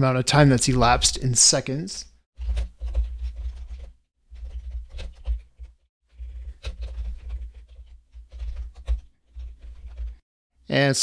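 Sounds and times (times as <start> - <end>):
computer keyboard typing: 2.4 - 10.2.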